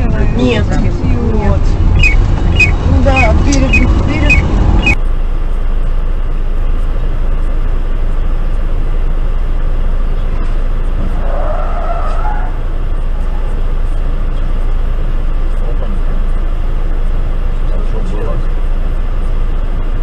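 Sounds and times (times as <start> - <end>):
car engine rumble: 0.0 - 20.0
passing city traffic: 0.0 - 20.0
high squeal from traffic: 2.0 - 5.0.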